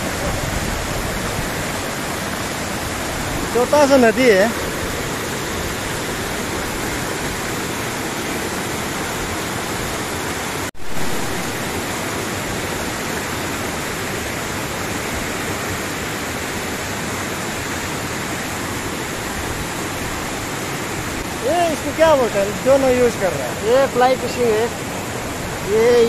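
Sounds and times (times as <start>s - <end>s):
mountain stream rushing over rocks: 0.0s - 26.0s.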